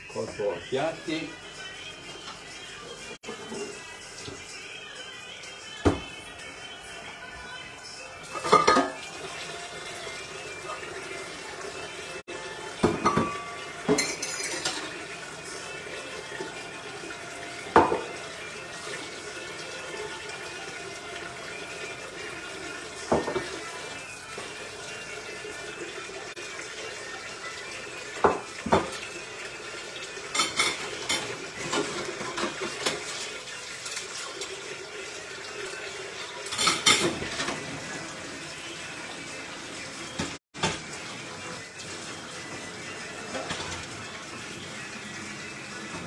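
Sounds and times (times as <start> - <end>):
pots and dishes clattering: 3.2 - 4.4, 8.2 - 9.4, 12.7 - 15.4, 17.6 - 18.2, 23.0 - 24.6, 28.1 - 29.1, 30.2 - 34.6, 36.2 - 38.0, 42.4 - 44.3.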